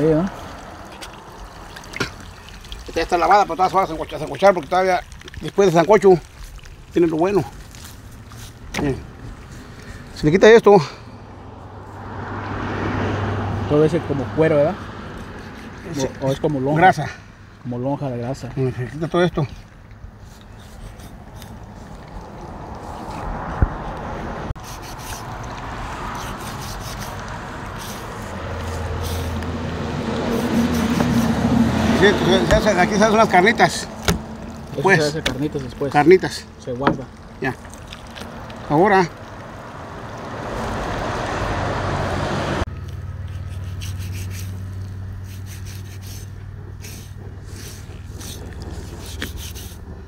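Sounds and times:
low engine hum: 0.0s - 4.7s, 6.2s - 17.7s, 18.4s - 50.0s
knife scraping pork skin: 15.1s - 16.4s, 20.2s - 21.9s, 24.6s - 29.4s, 30.2s - 35.7s, 43.2s - 49.9s.

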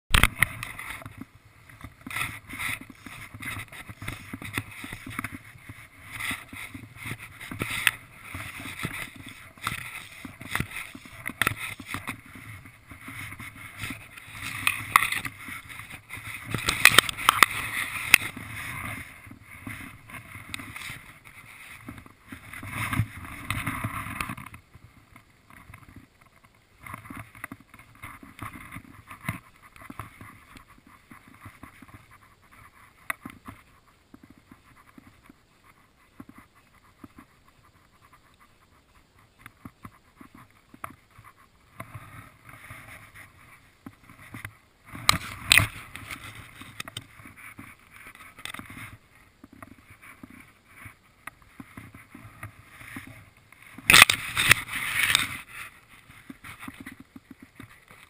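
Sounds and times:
fishing rod handling rustles: 0.1s - 24.6s, 44.0s - 50.5s, 51.4s - 58.0s.

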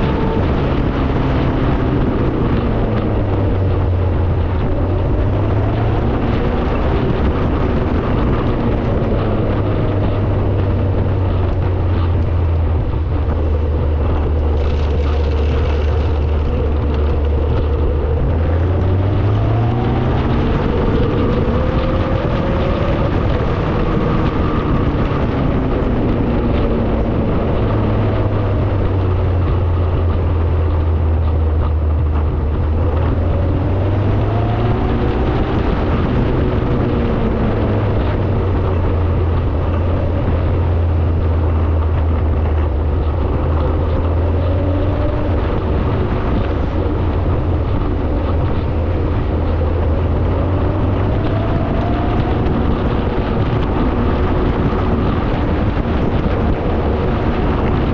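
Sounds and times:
car engine running: 0.0s - 57.9s
road noise: 0.0s - 57.9s.

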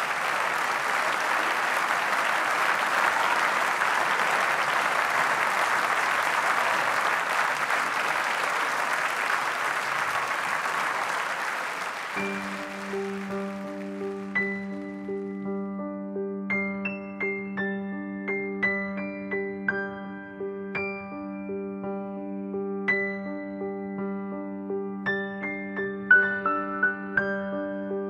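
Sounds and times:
audience applauding: 0.0s - 15.2s
music notes: 12.1s - 15.5s.

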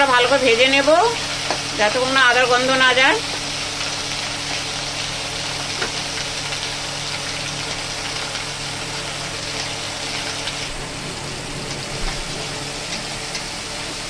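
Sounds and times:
paste sizzling in hot oil: 0.1s - 14.0s
low hum: 10.0s - 13.7s.

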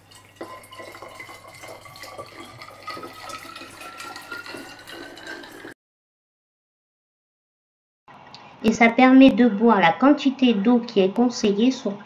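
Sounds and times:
water pouring into glass bottle: 0.0s - 5.8s.

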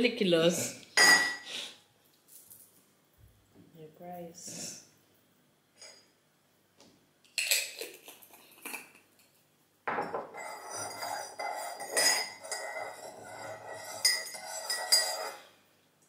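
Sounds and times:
spoon clinking stirring a drink: 10.0s - 15.5s
spoon scraping a cup: 10.1s - 15.6s.

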